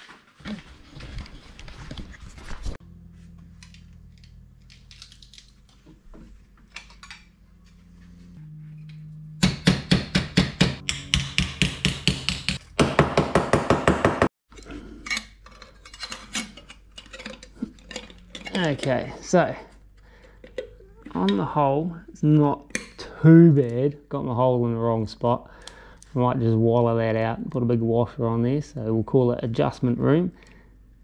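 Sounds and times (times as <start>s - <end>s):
hammer tapping metal sheet: 9.4s - 14.3s.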